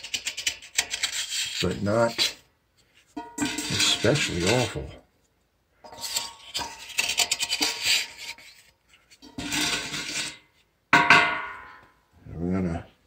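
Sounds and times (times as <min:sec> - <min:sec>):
wooden stirrer scraping metal: 0:00.0 - 0:05.0, 0:05.8 - 0:10.6
sharp metallic clank: 0:11.0 - 0:11.9.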